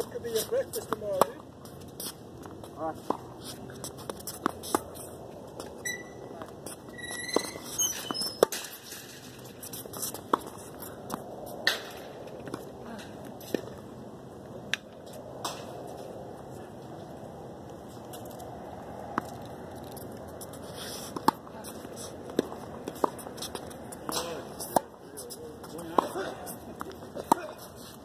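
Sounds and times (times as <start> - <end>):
shoes squeaking: 0.0 - 13.9, 17.8 - 28.0
tennis balls hit and bouncing: 0.0 - 28.0.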